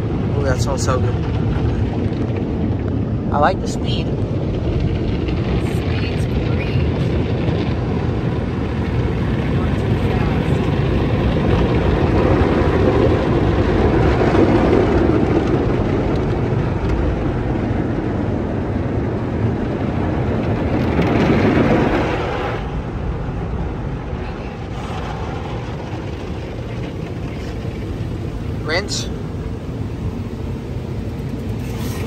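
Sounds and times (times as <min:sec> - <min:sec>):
water spraying on car: 0:00.0 - 0:32.0
car wash cloth scrubbing: 0:31.4 - 0:32.0.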